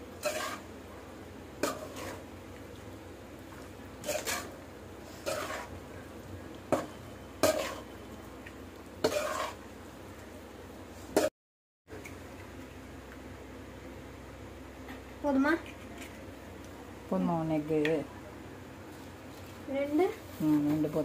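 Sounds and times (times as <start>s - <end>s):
metal spoon scraping a pan: 0.2s - 0.7s, 1.6s - 2.3s, 4.0s - 5.8s, 6.7s - 8.0s, 9.0s - 9.6s.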